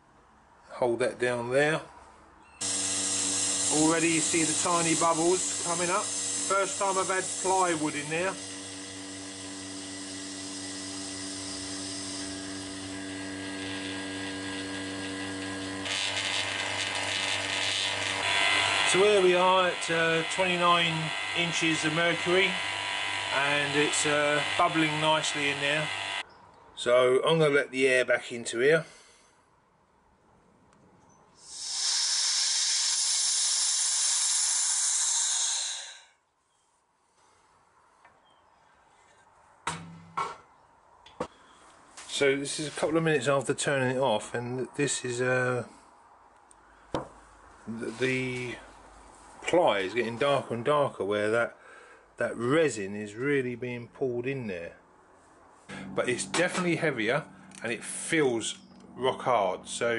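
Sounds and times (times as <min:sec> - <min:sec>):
loud hiss: 0:02.6 - 0:12.8, 0:31.4 - 0:36.2
vacuum pump humming: 0:02.6 - 0:26.2.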